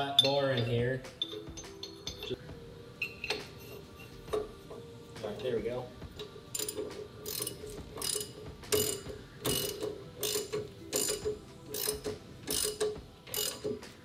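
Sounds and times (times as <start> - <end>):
hand ratchet clicking: 6.2 - 13.9.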